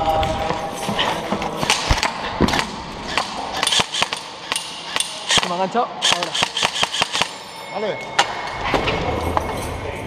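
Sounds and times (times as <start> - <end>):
airsoft rifle shots: 1.7 - 7.4.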